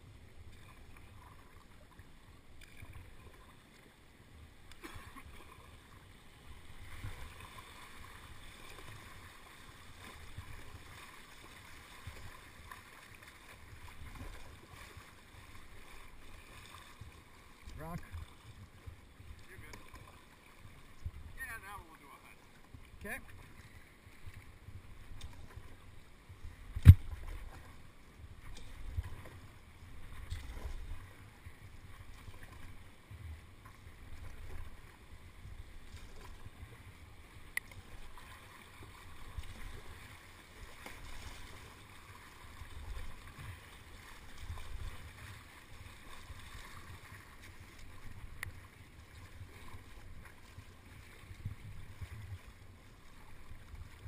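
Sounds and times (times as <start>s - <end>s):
river water lapping against canoe: 0.0s - 54.0s.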